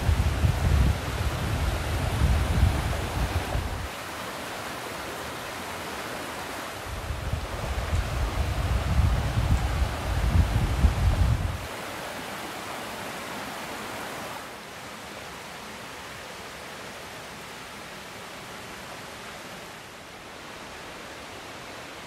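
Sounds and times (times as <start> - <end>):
wind buffeting microphone: 0.0 - 3.9, 6.9 - 11.7
creek water rushing: 0.0 - 22.0.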